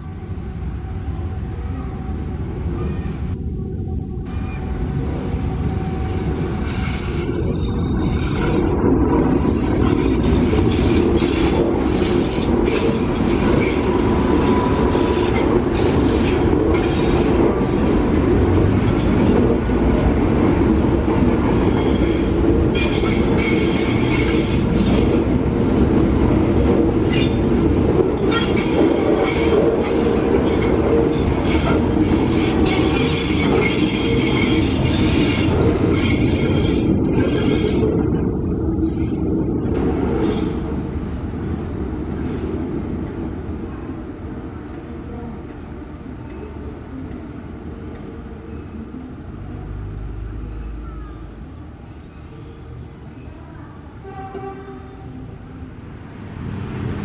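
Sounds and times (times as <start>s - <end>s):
train rumble: 0.0s - 57.0s
train wheels squealing on rails: 0.1s - 0.9s, 2.7s - 4.8s, 5.4s - 18.2s, 21.1s - 25.3s, 27.0s - 40.7s.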